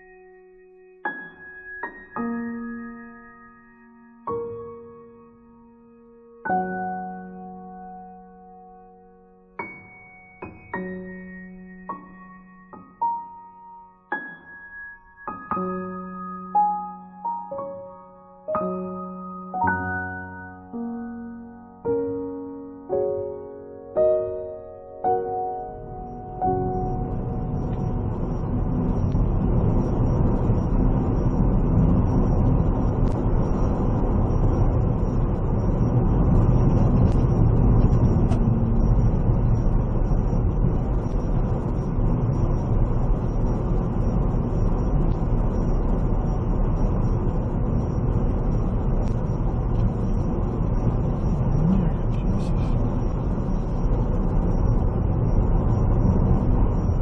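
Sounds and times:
faint high whine: 0:00.0 - 0:57.0
vehicle engine and road rumble: 0:27.1 - 0:57.0.

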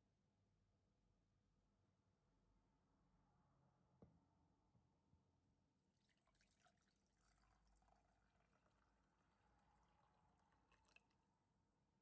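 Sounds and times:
water pouring into a mug: 0:06.0 - 0:11.6.

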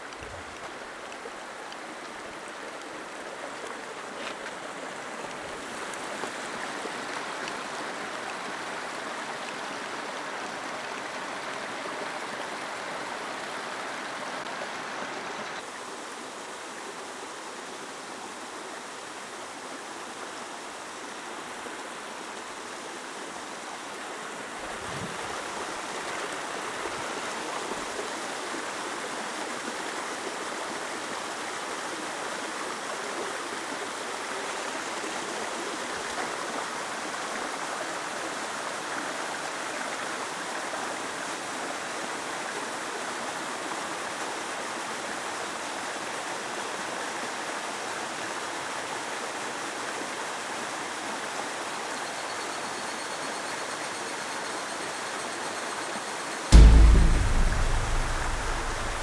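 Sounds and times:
dull low bump: 0:56.5 - 0:59.0
waterfall splashing into pool: 0:56.5 - 0:59.0.

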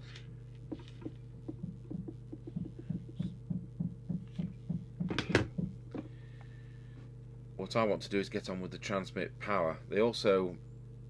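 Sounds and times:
low hum: 0:00.1 - 0:11.0
muffled hammering through wall: 0:00.7 - 0:05.8
sharp knocks: 0:00.7 - 0:05.8.

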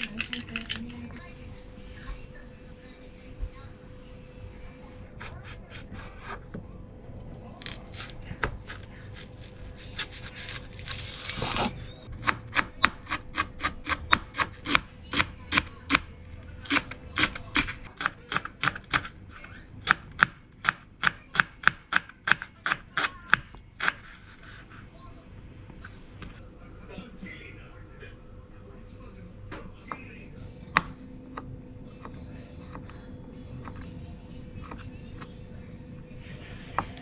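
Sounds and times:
knife chopping on plastic board: 0:12.2 - 0:16.1, 0:19.8 - 0:24.1, 0:30.7 - 0:33.0.

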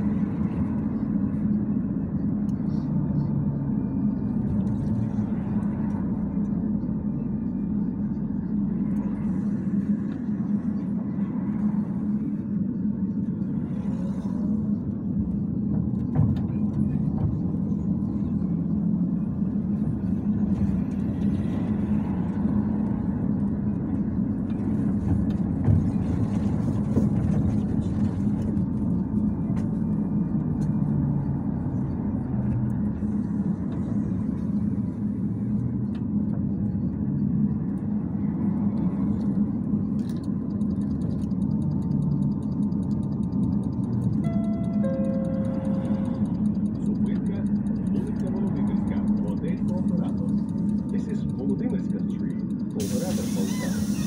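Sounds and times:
trolleybus hum and rumble: 0:00.0 - 0:54.0.

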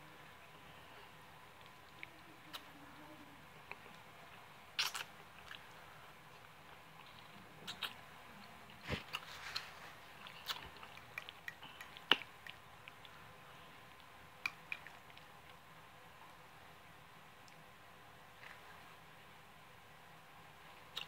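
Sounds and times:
wet mouth clicks: 0:04.8 - 0:05.6, 0:07.7 - 0:08.0, 0:10.2 - 0:13.2, 0:14.4 - 0:15.3
person chewing food: 0:04.8 - 0:05.8, 0:06.4 - 0:08.0, 0:08.7 - 0:13.2, 0:13.8 - 0:15.6.

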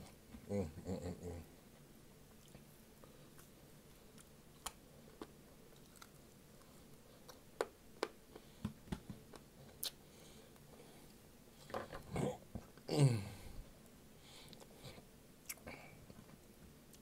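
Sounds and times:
chewing smacks: 0:04.1 - 0:07.4.

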